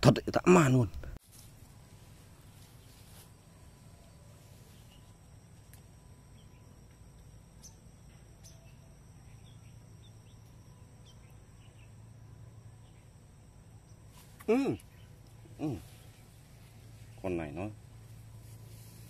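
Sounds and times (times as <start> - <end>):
low hum: 0.0 - 19.0
bird chirps: 7.6 - 13.2, 13.8 - 17.7.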